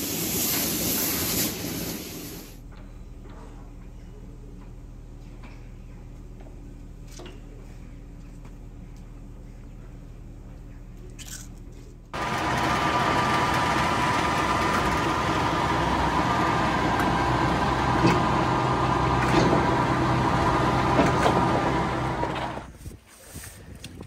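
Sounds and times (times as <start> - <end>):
feed mixer wagon running: 12.2 - 22.7.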